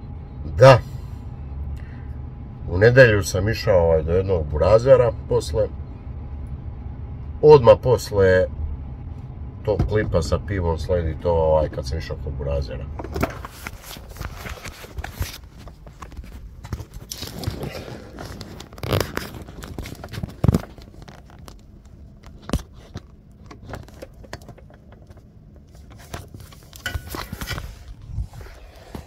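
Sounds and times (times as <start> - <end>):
phone handling rustling: 13.0 - 29.0.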